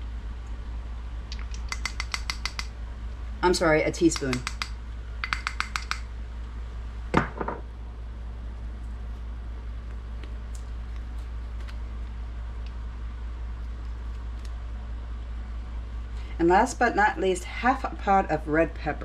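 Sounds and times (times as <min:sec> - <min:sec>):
steady low hum: 0:00.0 - 0:19.0
plastic spoons clicking together: 0:01.3 - 0:02.7.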